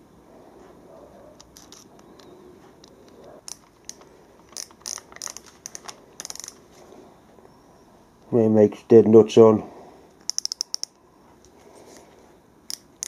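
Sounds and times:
micrometer ratchet clicking: 1.4s - 6.6s, 10.2s - 11.0s, 12.7s - 13.0s.

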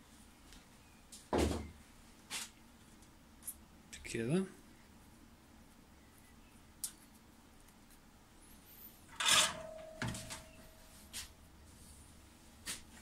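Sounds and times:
rustle and knock: 9.1s - 13.0s.

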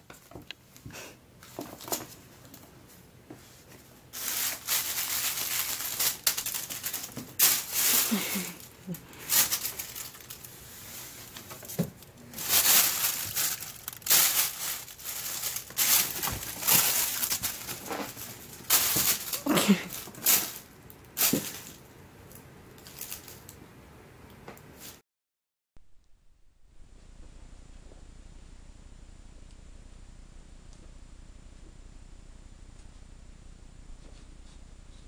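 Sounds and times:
crinkling and rustling: 0.0s - 23.6s.

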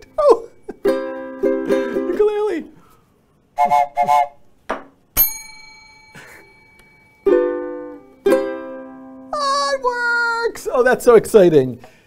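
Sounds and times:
ukulele strums: 0.0s - 2.6s, 5.7s - 9.3s
bell ringing: 5.2s - 8.3s
held high-pitched tone: 5.2s - 8.8s.

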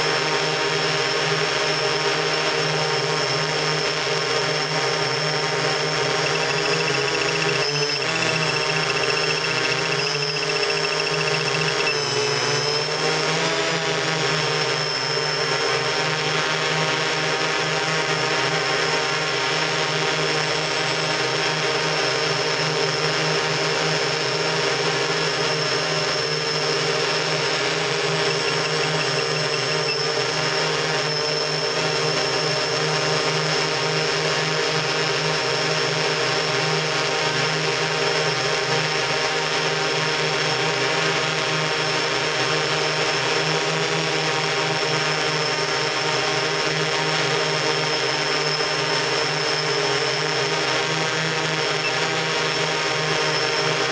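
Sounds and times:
drone motors whining: 1.4s - 16.0s, 25.2s - 33.2s.

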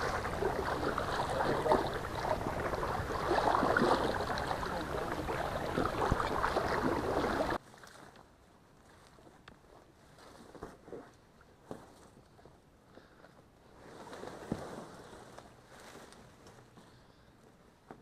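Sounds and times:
person wading through water: 0.0s - 7.6s.

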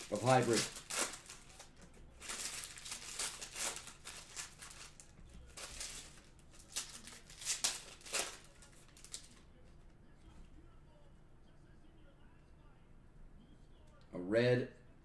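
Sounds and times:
foil wrappers crinkling: 0.0s - 9.5s.

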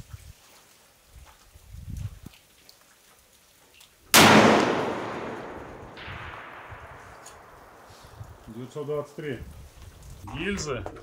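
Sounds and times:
rifle shot: 4.2s - 8.1s.

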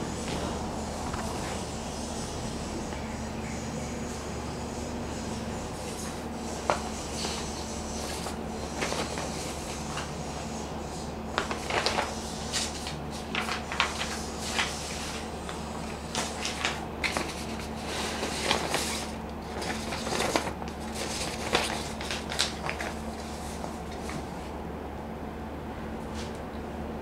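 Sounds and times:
low electrical hum: 0.0s - 27.0s
papers rustling: 5.9s - 10.1s, 11.4s - 24.3s.

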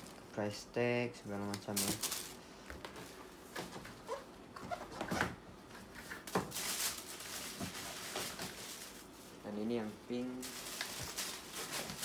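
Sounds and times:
tissue paper rustling: 1.8s - 2.4s, 6.5s - 12.0s.

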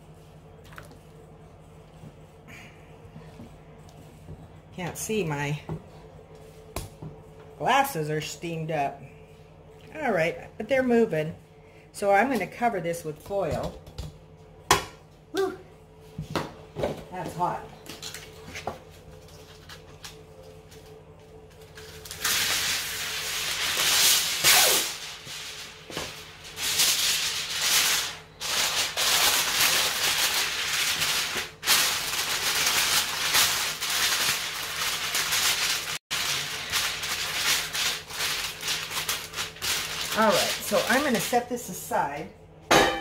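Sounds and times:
aluminium foil crinkling: 17.9s - 41.7s.

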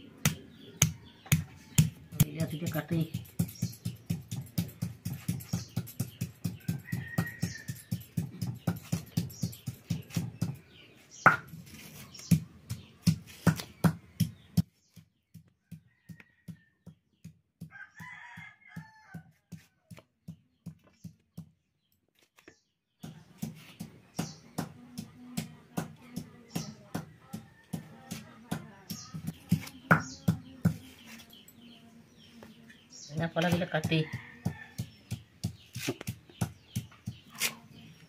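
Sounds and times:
stone pestle pounding: 0.2s - 14.7s, 23.0s - 30.9s, 33.2s - 38.0s.

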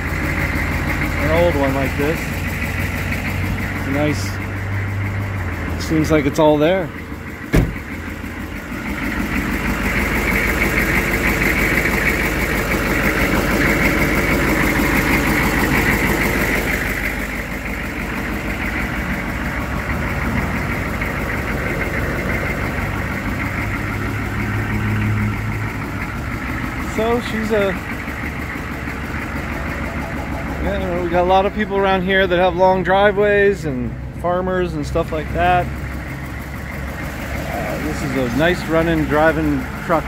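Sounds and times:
truck engine idling: 0.0s - 40.0s.

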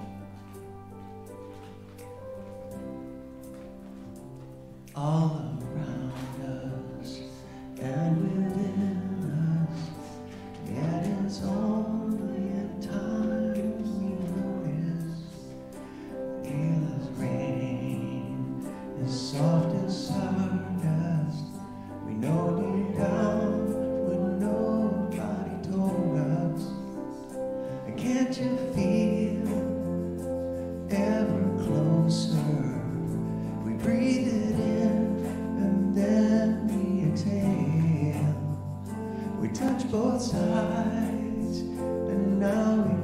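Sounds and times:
synthesizer keyboard chords: 0.0s - 43.0s
man singing: 4.9s - 43.0s.

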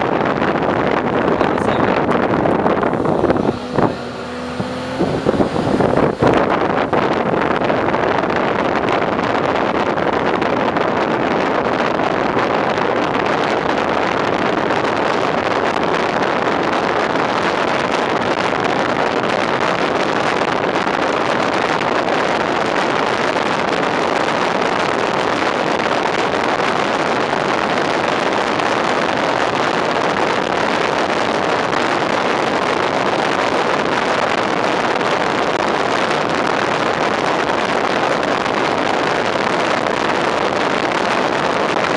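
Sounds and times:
fire engine road noise: 0.0s - 41.9s
wind rushing on microphone: 0.0s - 41.9s.

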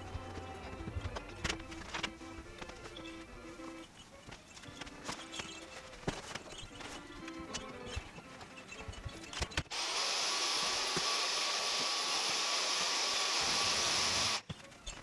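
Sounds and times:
background music: 0.0s - 15.0s
vacuum cleaner running: 9.7s - 14.4s.

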